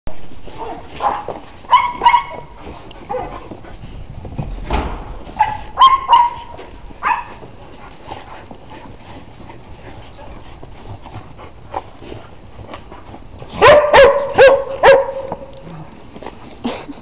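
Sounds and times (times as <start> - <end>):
dog barking: 0.6 - 2.5, 5.4 - 7.4, 13.6 - 15.5.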